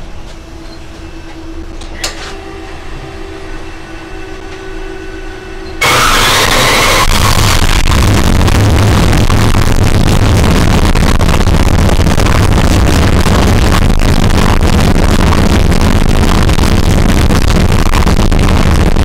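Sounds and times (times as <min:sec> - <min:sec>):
low steady hum: 0:00.0 - 0:19.0
car engine running loud: 0:05.8 - 0:19.0.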